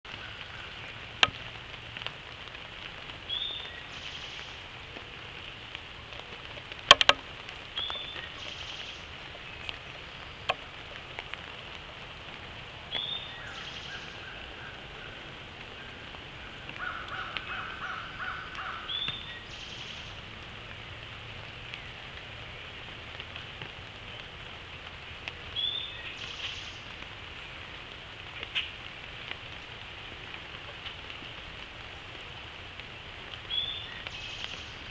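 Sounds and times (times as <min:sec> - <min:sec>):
rain falling: 0:00.0 - 0:34.9
sharp clicks: 0:06.9 - 0:07.2.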